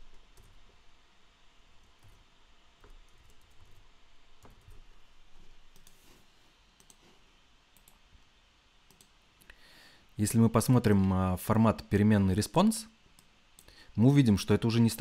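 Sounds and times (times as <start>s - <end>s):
keyboard typing: 0.0s - 0.8s, 1.8s - 2.2s, 2.8s - 6.1s, 6.8s - 7.1s
mouse clicking: 4.4s - 6.2s, 6.8s - 8.0s, 8.8s - 9.2s.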